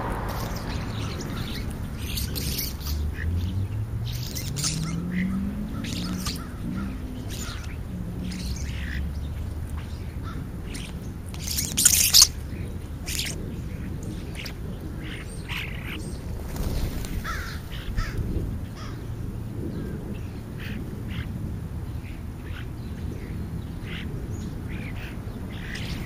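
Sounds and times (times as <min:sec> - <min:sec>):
starlings chirping and clicking: 0:00.0 - 0:26.0
bird wings flapping: 0:16.2 - 0:18.2.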